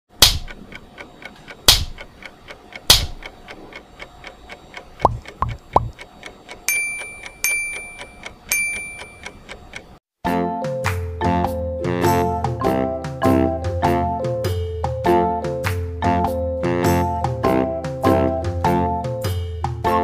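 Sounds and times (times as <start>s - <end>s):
clock ticking fast: 0.1s - 10.0s
ringing chime dings: 6.7s - 9.5s.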